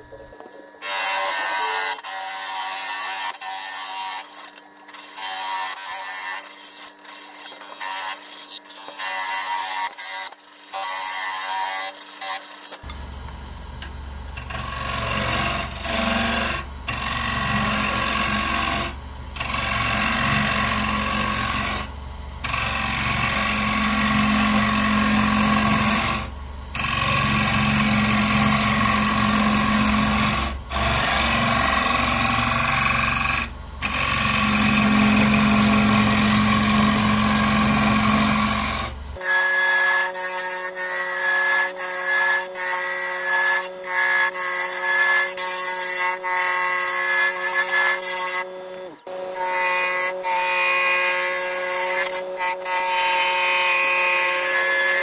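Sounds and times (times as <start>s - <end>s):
turning tool cutting wood: 0.0s - 55.0s
wood lathe humming: 12.8s - 55.0s.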